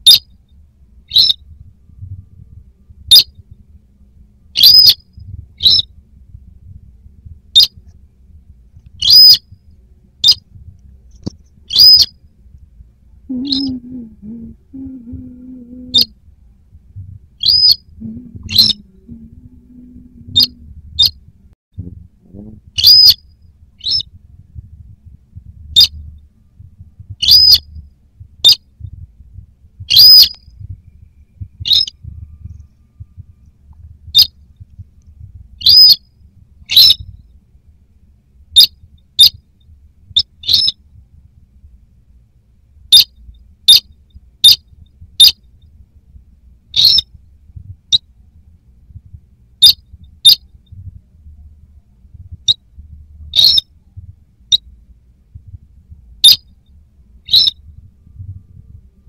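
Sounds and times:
bird calling short sharp notes: 31.6s - 32.0s.

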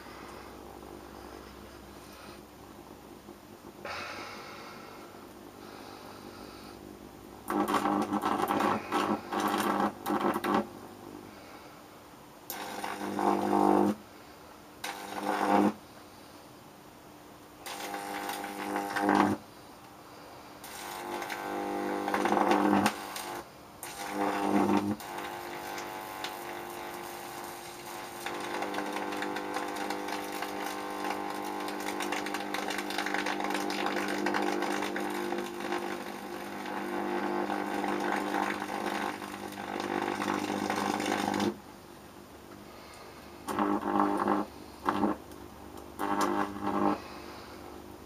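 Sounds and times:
electric arc buzzing: 7.4s - 10.8s, 12.5s - 14.0s, 14.8s - 15.8s, 17.6s - 19.4s, 20.6s - 41.6s, 43.4s - 47.6s
crackling of burning handle: 20.6s - 41.6s.

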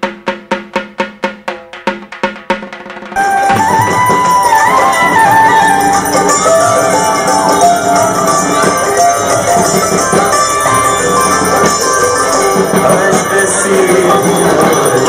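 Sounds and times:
jingling tambourine-like percussion: 1.9s - 15.0s
melody line: 3.2s - 15.0s.

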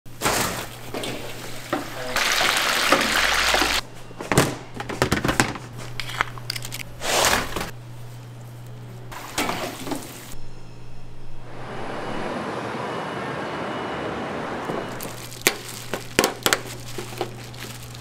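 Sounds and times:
hot oil hissing in fryer: 2.0s - 3.8s
low hum: 10.4s - 18.0s.

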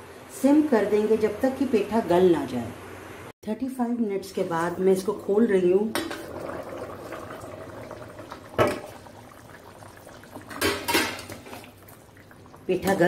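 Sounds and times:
curry bubbling in pan: 6.0s - 13.0s.

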